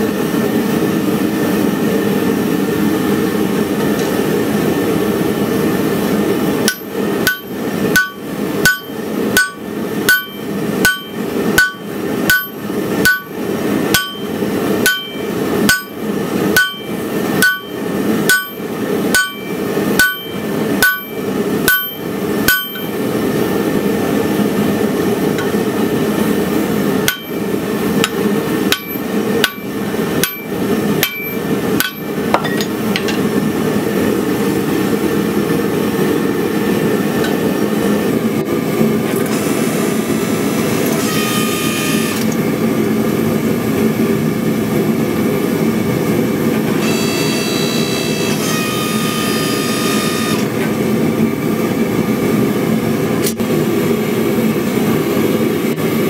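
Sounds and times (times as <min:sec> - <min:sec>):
hammer striking metal punch: 0:06.6 - 0:23.0, 0:27.1 - 0:33.2.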